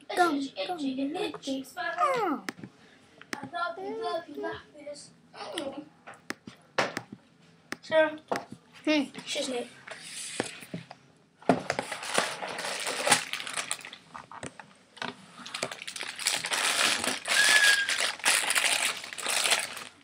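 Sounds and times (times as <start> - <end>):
plastic bag crinkling: 11.8 - 14.4, 15.4 - 20.0.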